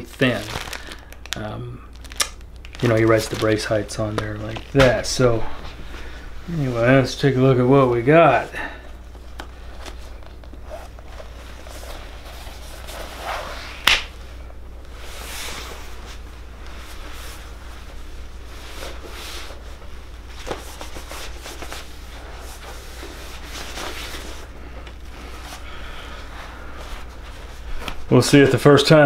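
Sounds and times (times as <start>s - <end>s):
sharp snap: 13.8s - 14.2s.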